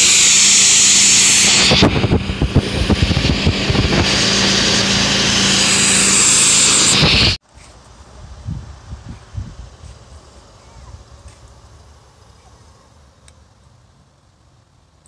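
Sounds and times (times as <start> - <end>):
pressure washer machine hum: 0.0 - 7.4
pressure washer spray hissing: 0.0 - 7.4.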